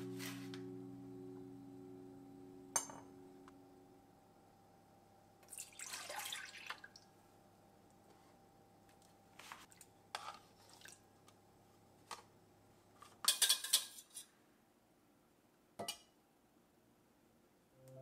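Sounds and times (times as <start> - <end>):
soft guitar music: 0.0 - 5.2
liquid splashing into metal bowl: 5.5 - 7.0.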